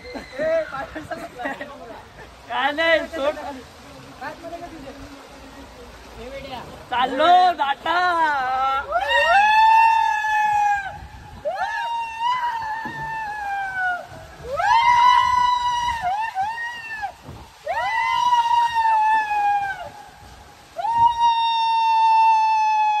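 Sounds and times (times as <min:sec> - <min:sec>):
riders screaming on water slide: 0:00.0 - 0:23.0.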